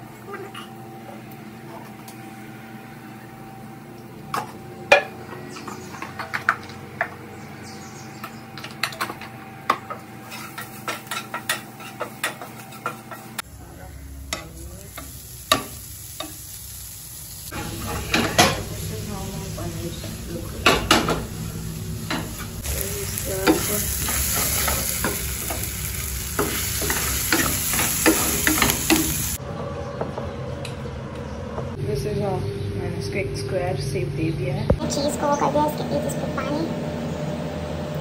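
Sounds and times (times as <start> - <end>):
light sizzle: 10.2 - 29.4.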